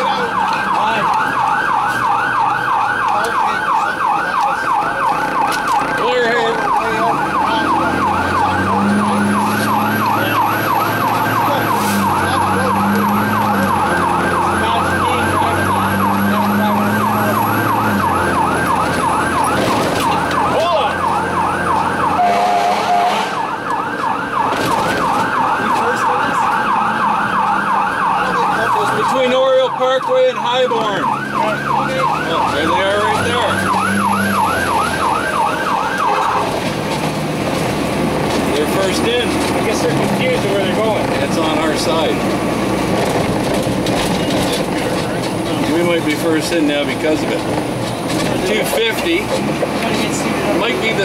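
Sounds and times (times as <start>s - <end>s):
electronic siren yelping: 0.0s - 36.6s
low horn blasts: 21.8s - 23.6s, 36.0s - 36.7s.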